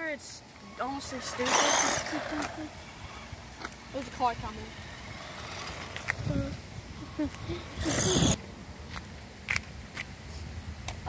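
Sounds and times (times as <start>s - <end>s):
footsteps on asphalt: 5.8s - 6.6s, 8.8s - 11.0s.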